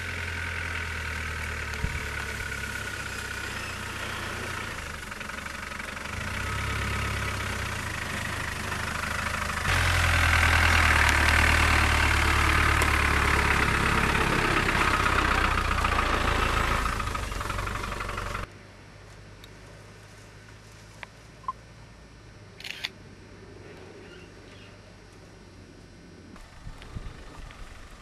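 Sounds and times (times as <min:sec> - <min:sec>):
diesel engine clatter: 0:00.0 - 0:18.5
foliage scraping vehicle: 0:00.0 - 0:18.5.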